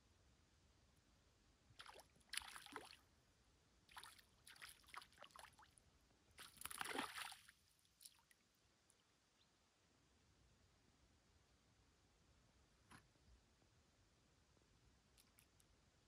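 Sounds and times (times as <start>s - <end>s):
fish splashing in water: 6.4s - 7.4s.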